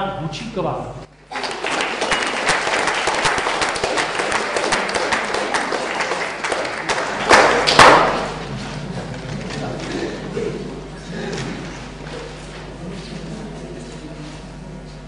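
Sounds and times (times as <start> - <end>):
audience applauding: 1.1 - 8.5
loud knocks: 7.3 - 8.4.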